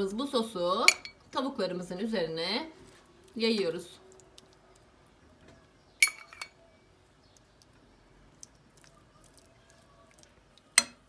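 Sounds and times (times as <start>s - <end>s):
metal spoon clinking on pan: 0.9s - 1.2s, 6.0s - 6.6s, 10.7s - 11.0s.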